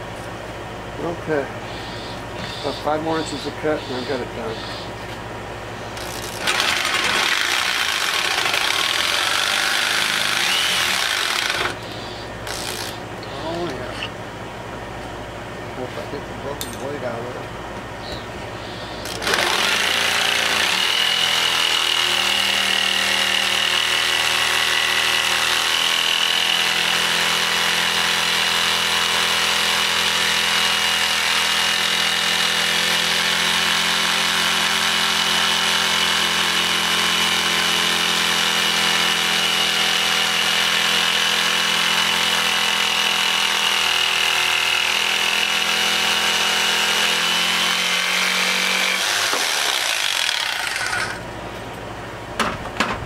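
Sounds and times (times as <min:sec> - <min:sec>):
electric jigsaw cutting wood: 0:06.0 - 0:11.8, 0:12.4 - 0:13.0, 0:19.0 - 0:51.2.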